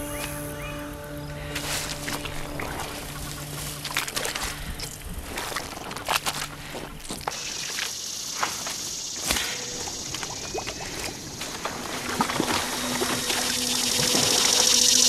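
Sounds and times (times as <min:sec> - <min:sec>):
steady high hiss: 0:00.0 - 0:05.2, 0:11.2 - 0:15.0
low steady hum: 0:00.0 - 0:07.3, 0:11.1 - 0:15.0
feet splashing through shallow water: 0:01.4 - 0:14.7.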